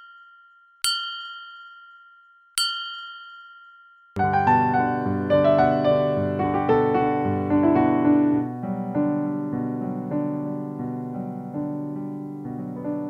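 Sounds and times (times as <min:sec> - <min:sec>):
gentle piano music: 0:04.2 - 0:13.0.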